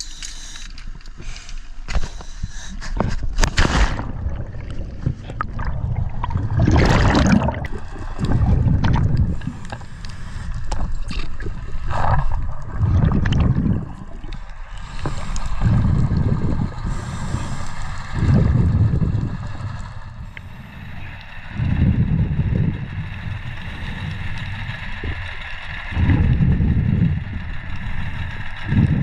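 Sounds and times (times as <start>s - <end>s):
regulator hiss: 0.0s - 1.5s
water splash: 3.4s - 9.5s, 11.1s - 14.3s
exhaled bubbles gurgling: 3.7s - 29.0s.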